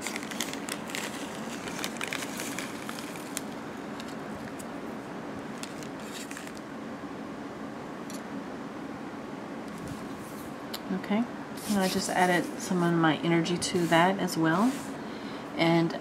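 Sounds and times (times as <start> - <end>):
grains rustling: 0.0 - 4.7
steady low hum: 0.0 - 16.0.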